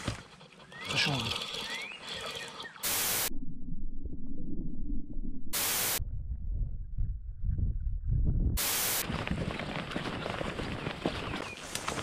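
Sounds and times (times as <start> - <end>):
tv static hissing: 2.8 - 3.3, 5.6 - 6.0, 8.6 - 9.0
low throbbing hum: 3.0 - 8.6.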